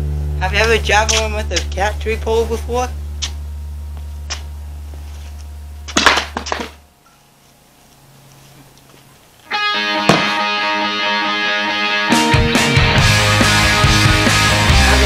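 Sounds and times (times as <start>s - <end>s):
low steady hum: 0.0s - 9.5s
rock music with guitar: 9.5s - 15.0s
object landing with thumps: 10.1s - 10.4s.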